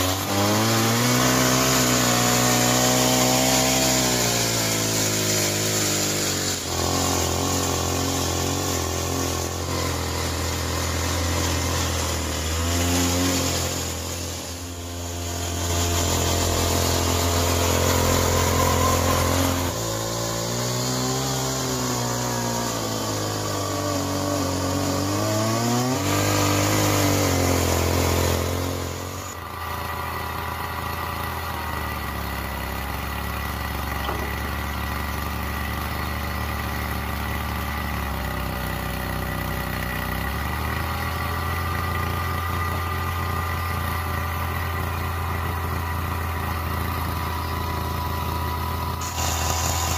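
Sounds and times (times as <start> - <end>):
tyres crunching gravel: 0.0 - 22.5
rc truck motor whine: 0.0 - 49.9
rc excavator motors humming: 27.7 - 49.9.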